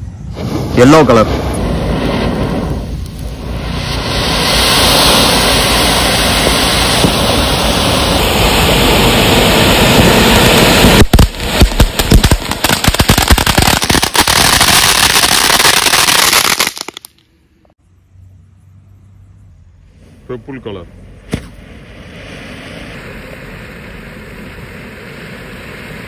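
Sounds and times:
firework fountain hissing: 0.0s - 17.1s, 19.8s - 26.0s
firework sharp crackling: 0.0s - 17.2s, 19.8s - 26.0s.

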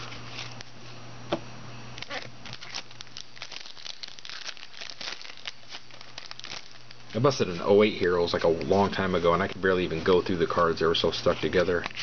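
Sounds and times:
foil wrapper crinkling: 2.0s - 10.2s.

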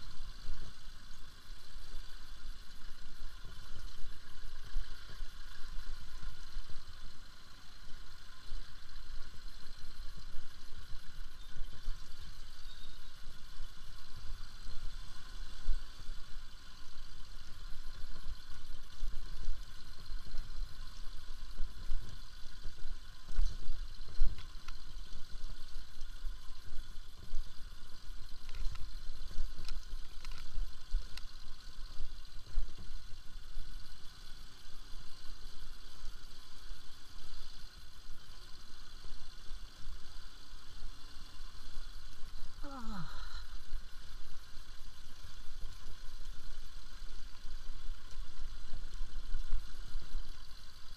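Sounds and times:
sharp ticks: 23.3s - 25.2s.

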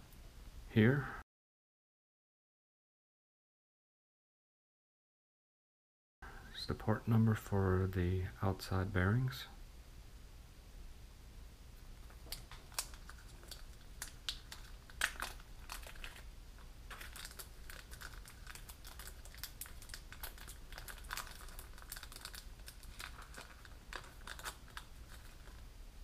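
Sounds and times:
plastic bag crinkling: 12.0s - 25.7s.

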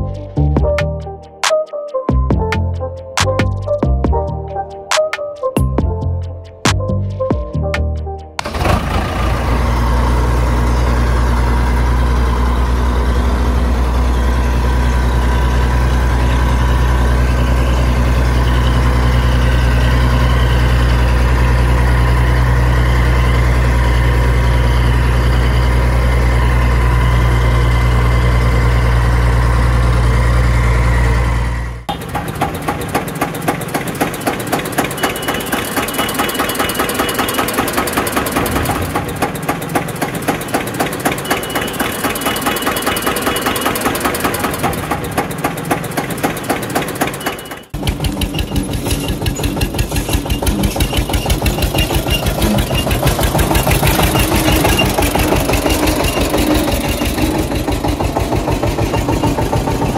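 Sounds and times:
deep engine hum: 0.0s - 1.4s, 5.6s - 33.2s, 47.7s - 59.9s
knocking diesel idle: 8.4s - 59.9s.

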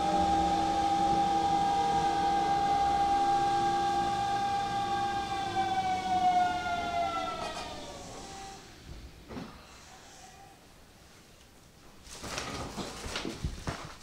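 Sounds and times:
electric train whine: 0.0s - 9.3s.

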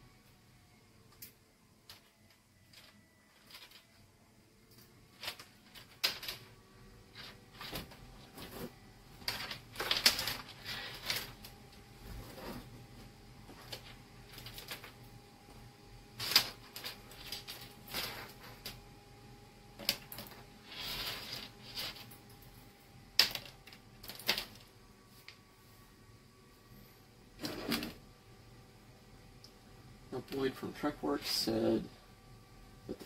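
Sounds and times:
wires and clips clicking and rustling: 1.1s - 4.0s, 4.7s - 11.9s, 13.4s - 15.2s, 16.2s - 18.9s, 19.8s - 22.6s, 23.2s - 25.4s.

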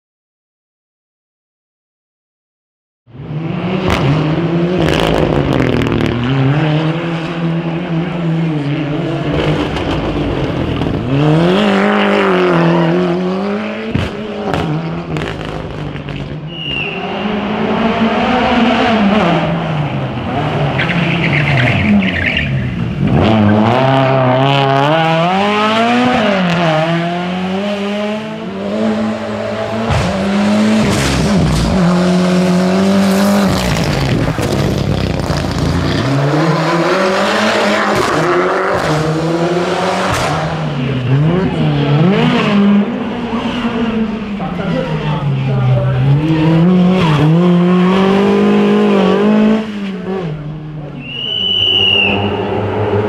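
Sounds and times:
rally car engines revving: 3.1s - 53.0s
tyre squeal: 16.5s - 17.2s.

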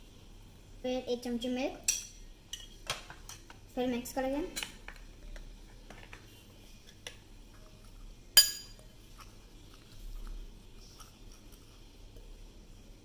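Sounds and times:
spoon clinking against bowl: 8.4s - 8.8s
spoon scraping in bowl: 8.7s - 11.9s.

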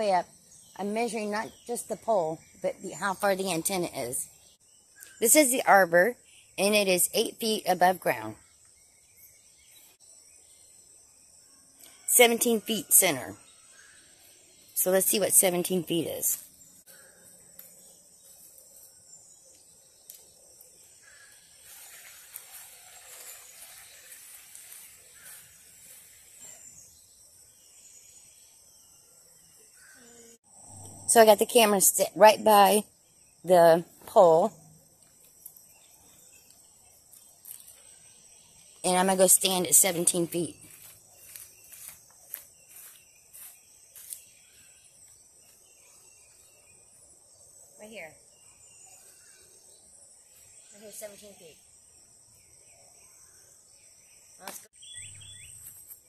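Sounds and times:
insect chorus: 0.0s - 56.0s
footsteps on grass and leaves: 21.2s - 26.4s, 40.6s - 44.3s
soft rustling: 21.3s - 26.6s
high-pitched insect buzz: 29.8s - 33.4s, 34.5s - 46.6s.

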